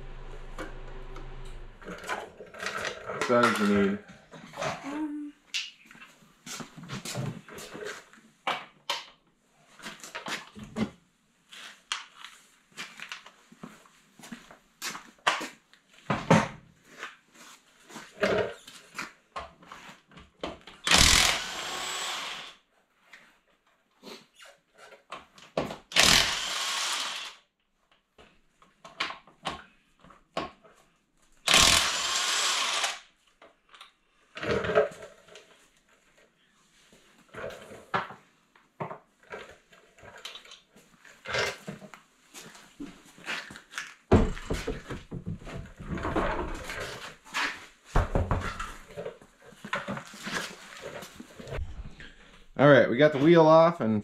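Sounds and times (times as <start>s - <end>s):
impact wrench spinning: 20.8s - 22.6s, 25.9s - 27.4s, 31.5s - 33.1s.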